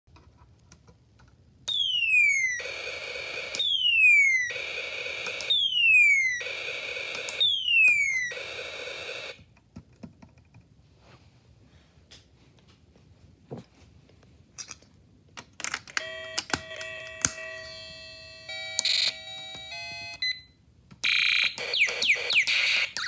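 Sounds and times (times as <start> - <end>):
clicks of parts handled: 14.6 - 16.6.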